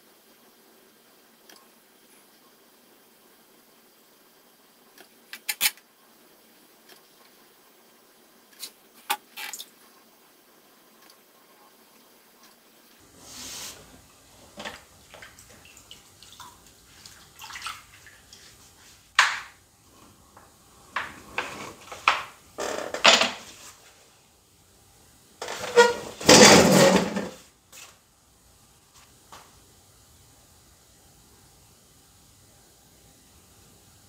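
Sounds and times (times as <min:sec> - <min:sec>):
wet clay squishing on pottery wheel: 0:13.2 - 0:19.1.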